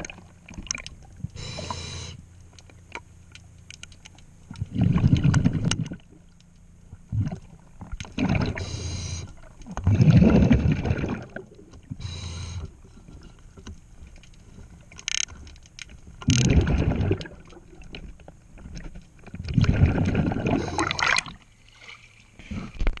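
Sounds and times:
exhaust bubbles rumbling: 0.0s - 2.1s, 4.4s - 13.0s, 16.2s - 18.1s, 19.4s - 21.4s
regulator breathing hiss: 1.4s - 2.2s, 8.6s - 9.3s, 12.0s - 12.8s.

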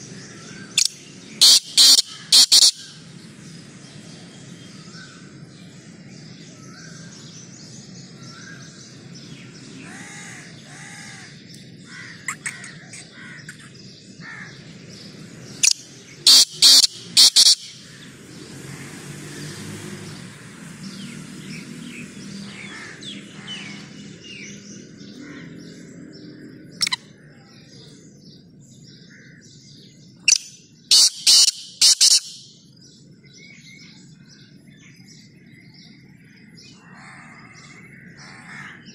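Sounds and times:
small birds chirping: 0.0s - 38.9s
francolin calling: 0.4s - 3.0s, 15.6s - 18.0s, 30.2s - 32.8s.

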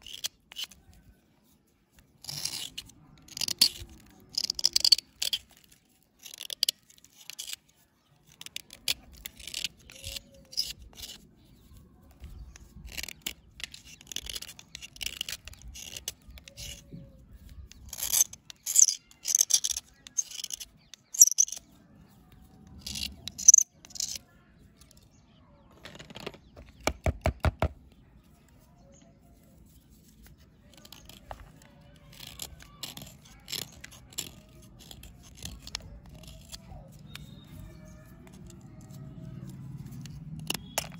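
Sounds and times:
pocket knife scraping a dry bar: 0.0s - 21.7s, 30.1s - 40.9s.

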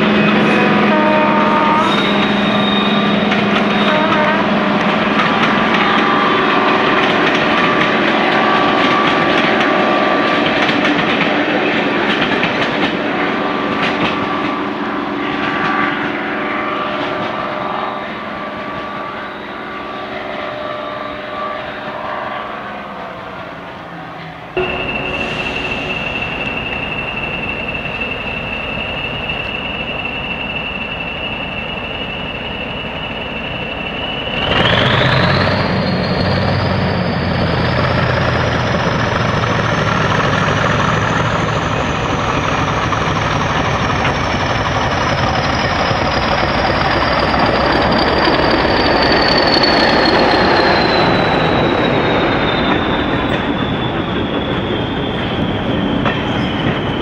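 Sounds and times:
diesel locomotive engine: 0.0s - 57.0s
turbocharger whistling: 24.6s - 57.0s.

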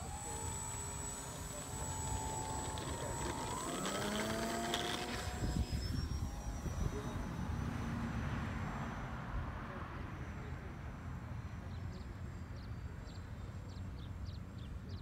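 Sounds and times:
model airplane motor whining: 0.0s - 9.1s.

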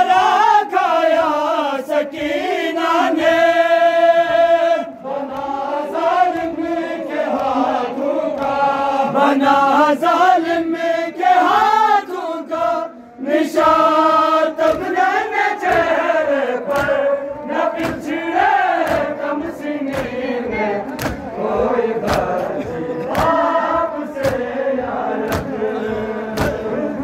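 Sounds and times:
men chanting a lament in unison: 0.0s - 27.0s.

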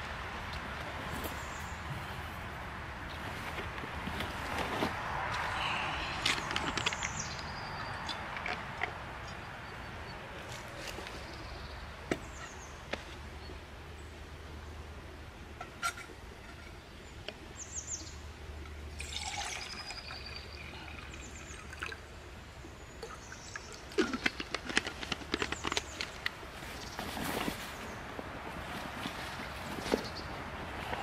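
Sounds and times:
birds chirping: 5.4s - 14.8s, 22.6s - 24.0s, 28.9s - 31.0s
water pouring into metal pot: 19.0s - 22.0s.

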